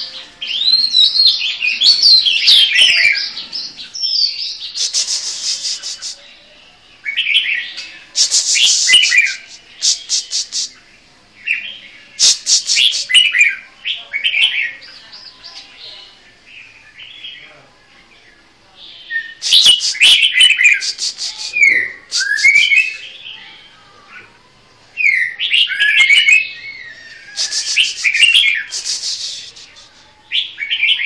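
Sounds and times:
caged songbirds chirping and trilling: 0.0s - 31.0s.

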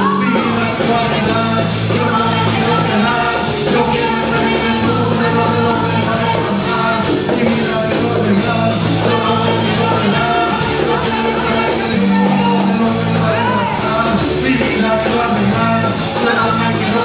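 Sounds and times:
live band playing upbeat song: 0.0s - 17.0s
man singing into a microphone: 0.0s - 17.0s.

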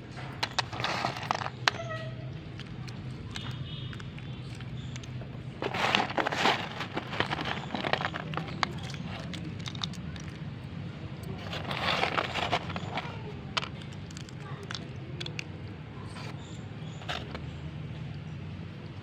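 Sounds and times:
dry clay chips crunching: 0.0s - 17.6s
sharp clicks of chips: 11.2s - 16.4s.

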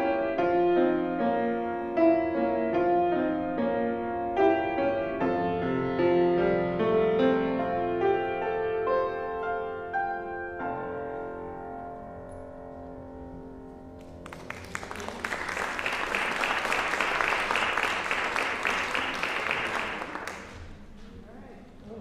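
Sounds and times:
piano music: 0.0s - 20.9s
audience applause: 14.2s - 20.6s.

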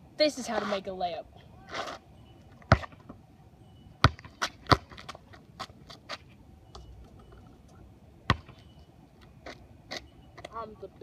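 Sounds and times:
basketball bouncing on asphalt: 2.6s - 3.2s, 4.0s - 6.9s, 8.2s - 8.8s.

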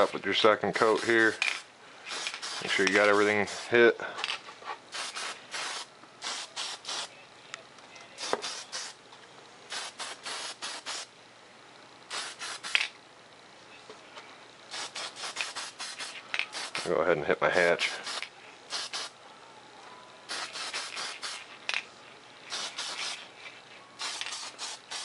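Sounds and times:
spray paint can hissing: 0.8s - 3.7s, 4.9s - 7.1s, 8.2s - 9.0s, 9.7s - 11.1s, 12.1s - 12.9s, 14.7s - 16.9s, 17.8s - 19.1s, 20.3s - 21.8s, 22.5s - 23.3s, 24.0s - 25.0s.

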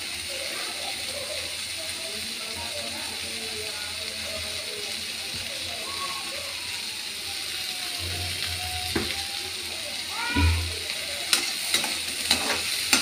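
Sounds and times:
onions sizzling in hot oil: 0.0s - 13.0s
metal spatula clicking on pan: 11.3s - 13.0s.

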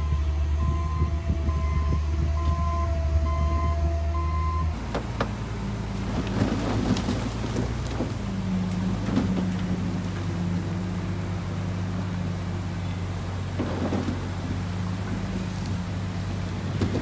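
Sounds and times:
reversing alarm beeping: 0.0s - 4.8s
diesel machine running: 0.0s - 17.0s
engine running under load: 0.0s - 17.0s.

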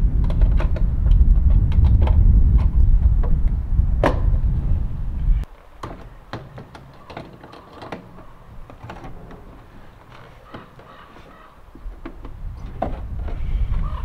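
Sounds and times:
heavy low rumble: 0.0s - 5.5s, 11.9s - 14.0s.

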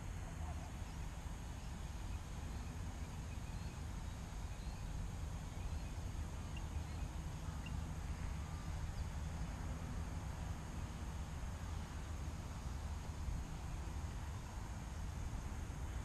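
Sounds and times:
faint bird chirps: 0.2s - 9.5s.

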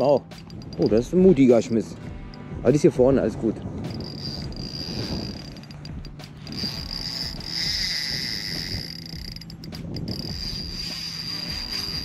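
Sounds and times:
fishing reel whirring: 3.9s - 12.0s.

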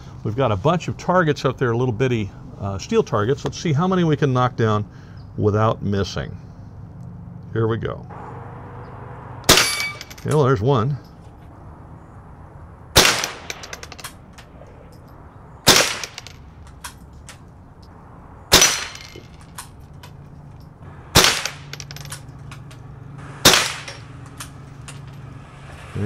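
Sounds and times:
rifle shots: 13.0s - 14.0s, 15.6s - 16.4s, 18.5s - 19.4s, 21.1s - 22.0s, 23.2s - 24.2s.

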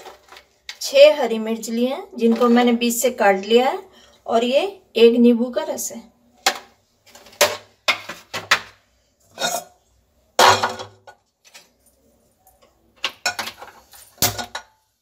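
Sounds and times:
plastic bowls clacking: 6.5s - 8.8s, 12.6s - 14.8s
metal wok set down on grate: 13.2s - 14.7s.

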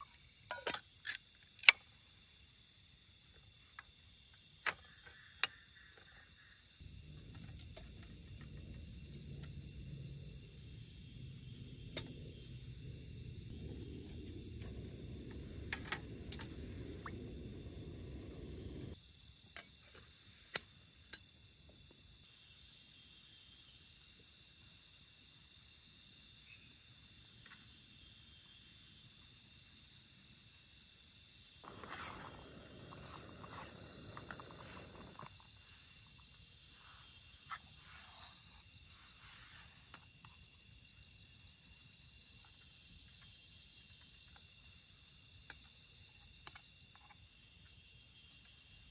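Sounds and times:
crickets chirping: 0.0s - 48.9s.

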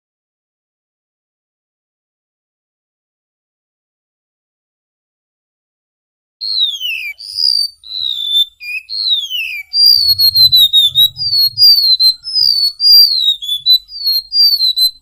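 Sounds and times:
bird singing high whistled notes: 6.4s - 15.0s.

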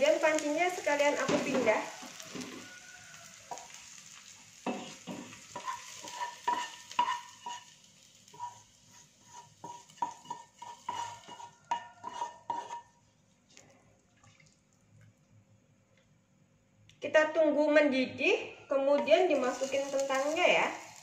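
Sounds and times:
hot pan hissing: 0.0s - 11.4s, 19.0s - 21.0s
wooden spatula scraping a pan: 1.2s - 2.8s, 4.6s - 13.2s, 19.0s - 21.0s.

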